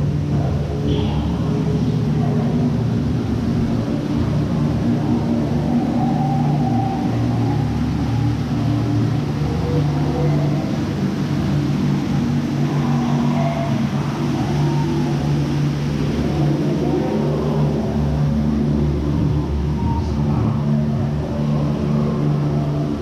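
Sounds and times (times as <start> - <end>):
low drone of sustained tones: 0.0 - 23.0
faint wavering high calls: 4.8 - 11.2, 11.8 - 18.1.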